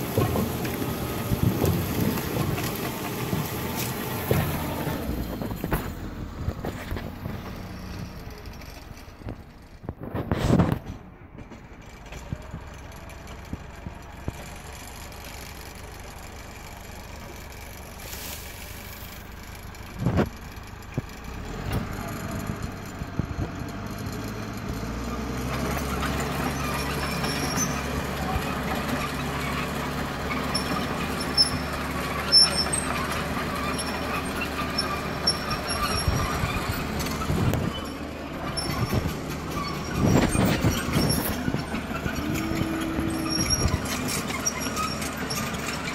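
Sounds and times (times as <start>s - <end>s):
bulldozer diesel engine working: 0.0s - 45.9s
faint high squeaks: 25.8s - 45.9s.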